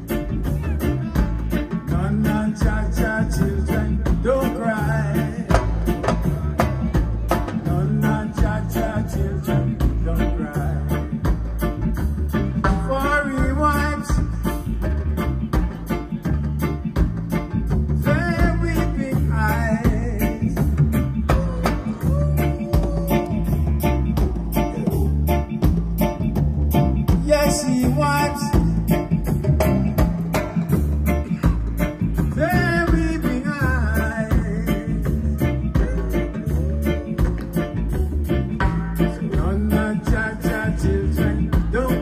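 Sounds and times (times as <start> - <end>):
person singing: 0.0 - 11.3, 17.9 - 25.6, 27.1 - 30.0, 31.0 - 42.0
hand drums: 0.0 - 42.0
reggae band playing: 0.0 - 42.0.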